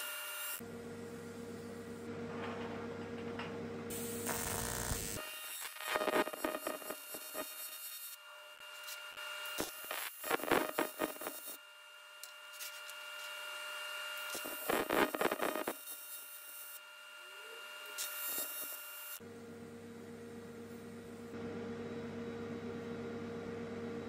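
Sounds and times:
welding arc buzzing and crackling: 0:00.0 - 0:00.6, 0:03.9 - 0:19.2.

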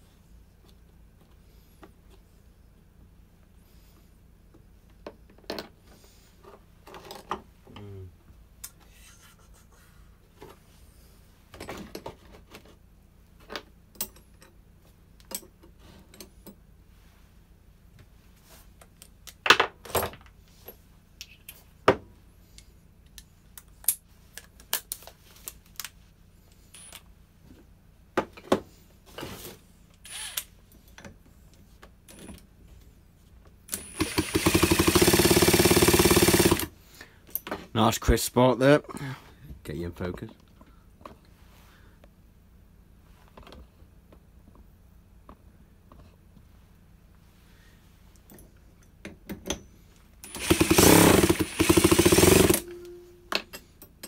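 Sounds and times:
hand tools and parts clinking: 0:26.5 - 0:27.1.

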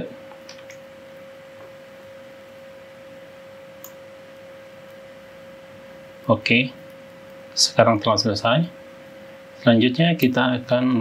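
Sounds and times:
steady single-pitched hum: 0:00.0 - 0:11.0.

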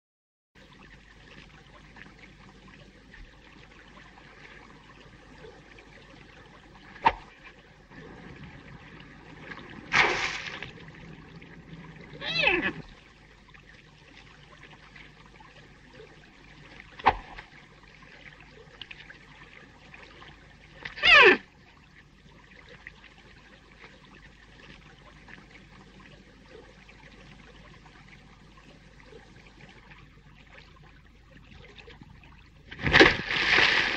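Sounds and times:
splash: 0:09.4 - 0:11.0, 0:16.9 - 0:17.6, 0:32.7 - 0:33.9
short yelps: 0:12.2 - 0:12.8, 0:20.9 - 0:21.4.

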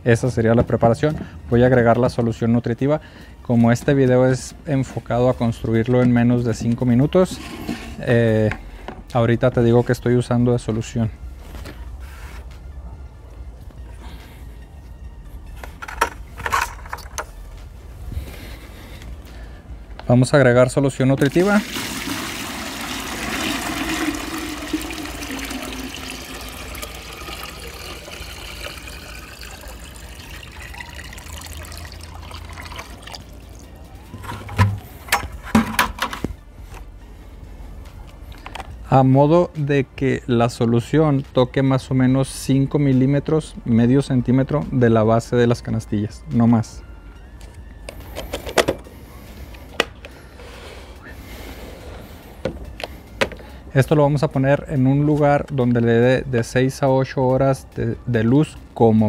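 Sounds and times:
liquid pouring and splashing: 0:21.3 - 0:33.6.

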